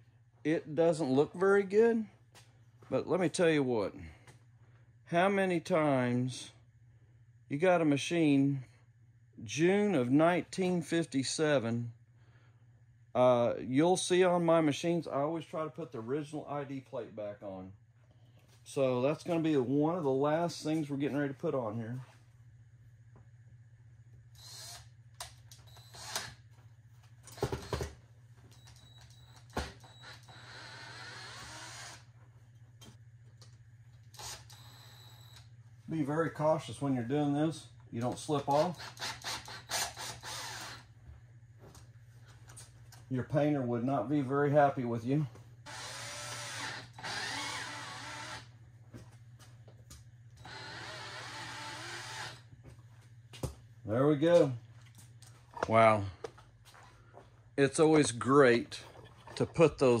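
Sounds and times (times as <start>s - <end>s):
steady low hum: 0.0s - 60.0s
cordless drill on steel: 24.4s - 24.9s, 25.7s - 26.4s, 29.8s - 32.1s, 34.2s - 35.3s, 38.5s - 40.9s, 45.7s - 48.5s, 50.4s - 52.5s.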